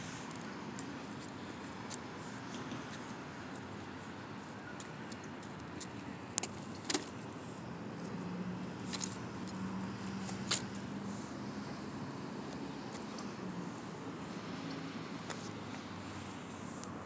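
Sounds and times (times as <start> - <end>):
stroller frame clicking and rattling: 5.1 - 7.2, 10.2 - 10.8.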